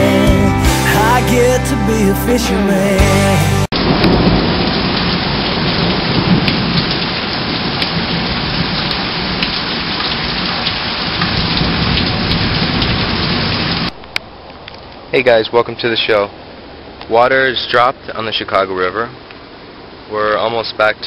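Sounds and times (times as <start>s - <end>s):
heavy rain falling: 3.7s - 21.0s
low thunder rumble: 3.8s - 9.4s, 11.1s - 14.0s.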